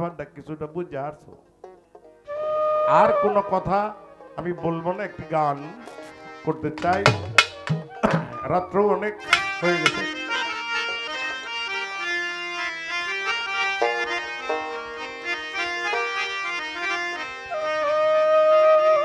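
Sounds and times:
free-reed instrument melody: 1.0s - 19.0s.

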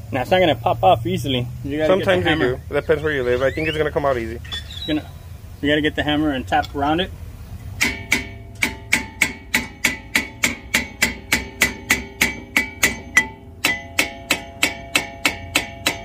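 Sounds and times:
hammer blows on metal: 7.7s - 16.0s.

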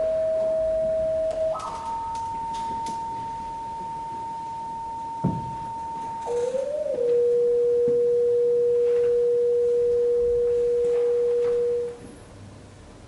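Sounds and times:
steady electronic tone: 0.0s - 12.0s.

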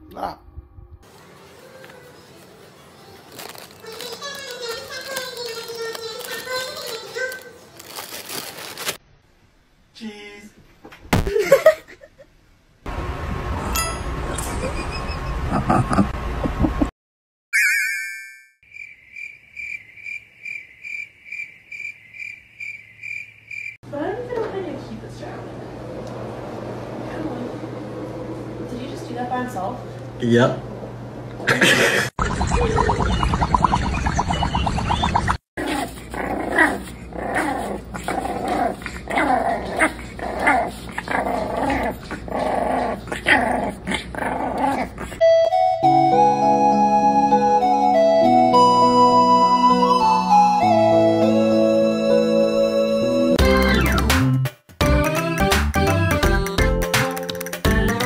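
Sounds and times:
cricket chirping: 18.6s - 23.8s
puppies growling and yapping: 35.0s - 45.2s
gentle keyboard music: 45.2s - 54.1s.

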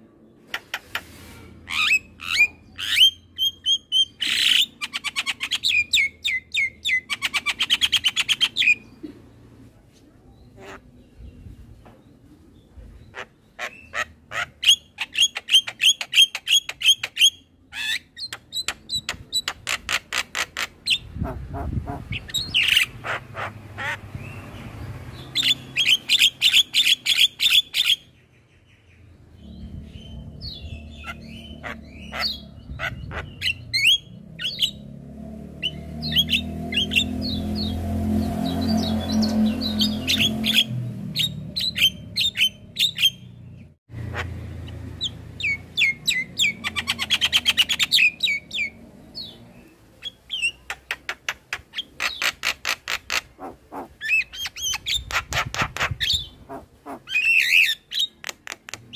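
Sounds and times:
harsh bird squawks: 19.6s - 24.3s, 29.4s - 34.8s, 51.7s - 58.2s
myna calling: 51.9s - 57.7s.

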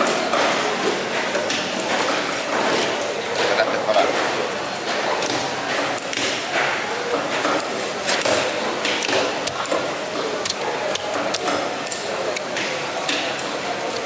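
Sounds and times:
market clatter and chatter: 0.0s - 14.0s
knife chopping fish: 5.2s - 13.4s.

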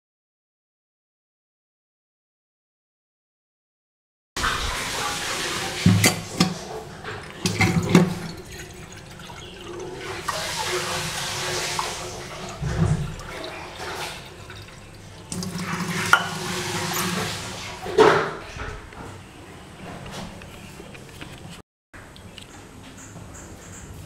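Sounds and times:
tap running into metal sink: 4.4s - 18.4s
pots clinking against sink: 4.4s - 19.2s.

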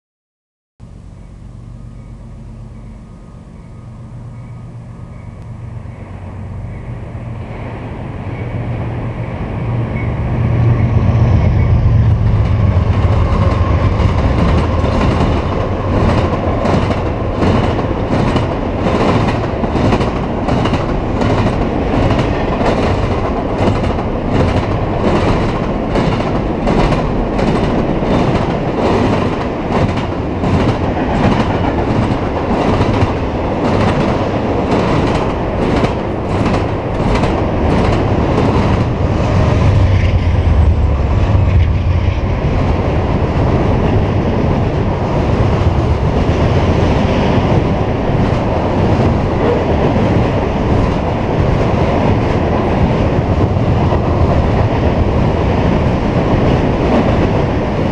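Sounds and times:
diesel locomotive engine drone: 0.8s - 57.9s
train wheel clicks: 12.4s - 38.9s.

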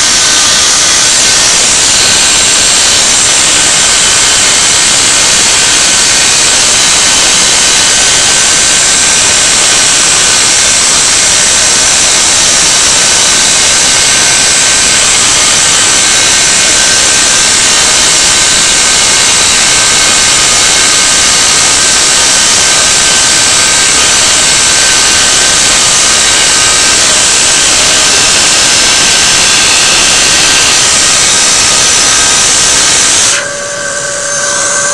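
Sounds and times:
cnc spindle cutting wood: 0.0s - 34.9s
dust extraction vacuum rushing: 0.0s - 34.9s
faint high tones: 33.4s - 34.9s.

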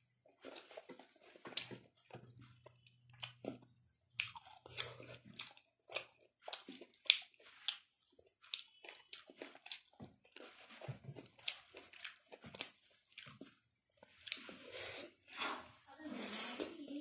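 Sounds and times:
close-up chewing: 0.2s - 15.7s.

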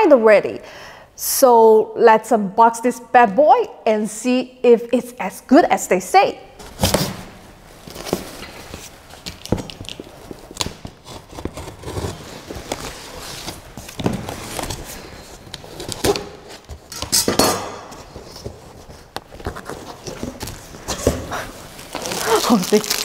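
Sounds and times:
cardboard tearing: 7.9s - 16.9s, 18.0s - 23.0s
blade scraping cardboard box: 10.5s - 16.9s.

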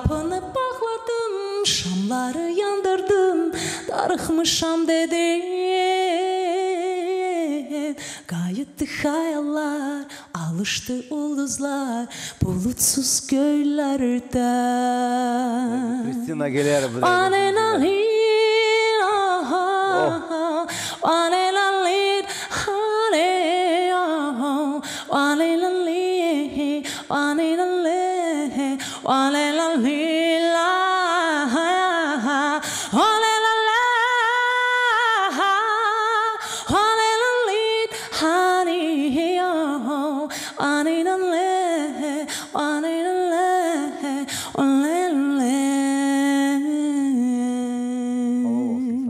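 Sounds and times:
woman singing with vibrato: 0.0s - 49.0s.

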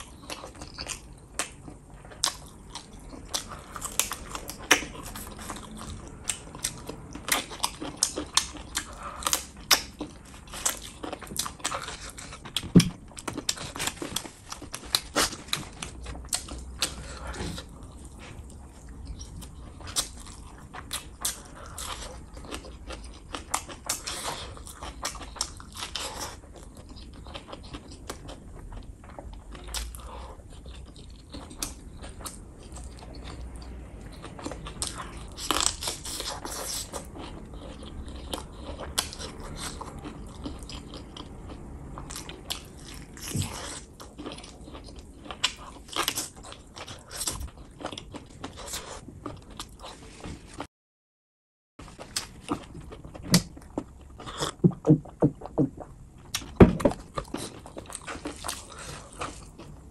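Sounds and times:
wet chewing: 0.0s - 50.7s, 51.8s - 59.9s
mouth clicks and smacks: 54.3s - 56.7s.

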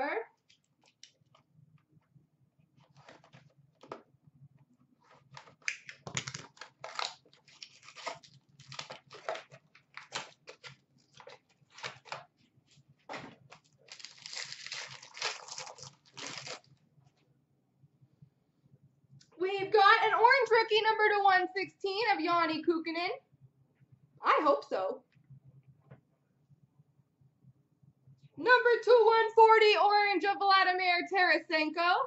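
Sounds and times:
card box wrapper ripping: 5.3s - 12.2s, 13.5s - 16.7s.

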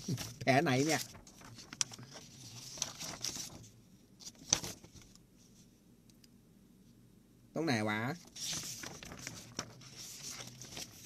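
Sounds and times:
paper sheets rustling: 0.0s - 5.6s, 8.2s - 11.0s.

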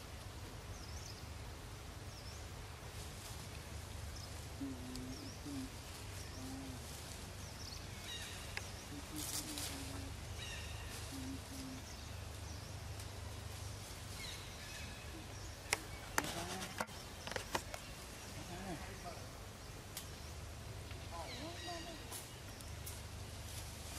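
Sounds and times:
faint bird chirps: 4.1s - 20.5s
short rustle: 12.9s - 18.4s.

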